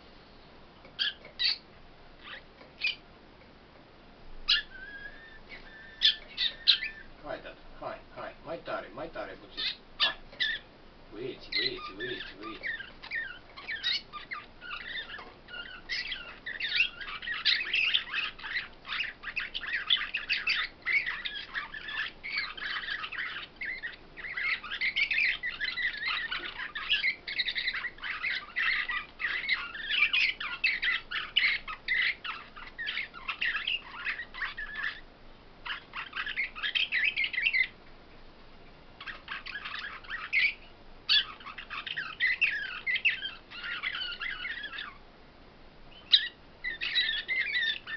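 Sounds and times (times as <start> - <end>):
caged songbirds twittering: 0.0 - 47.9.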